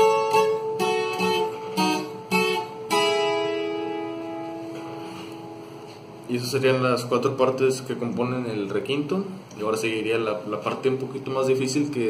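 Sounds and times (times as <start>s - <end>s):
acoustic guitar note ringing: 0.0s - 6.3s.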